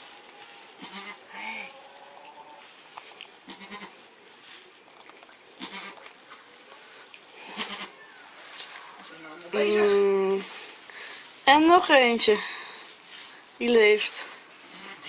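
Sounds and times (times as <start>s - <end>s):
rustling in straw: 0.0s - 15.0s
goat bleating: 0.8s - 2.6s, 3.4s - 4.0s, 5.6s - 6.0s, 7.4s - 8.1s, 14.7s - 15.0s.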